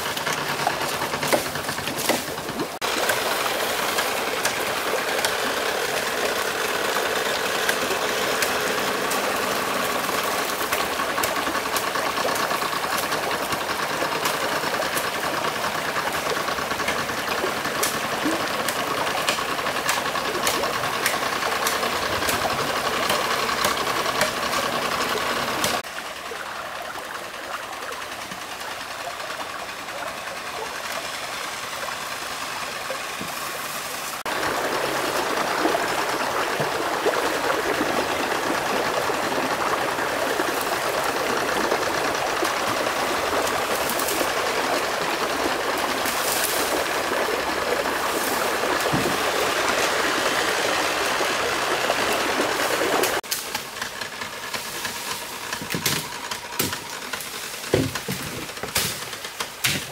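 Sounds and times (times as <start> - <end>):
stream rushing over rocks: 31.0 - 53.2.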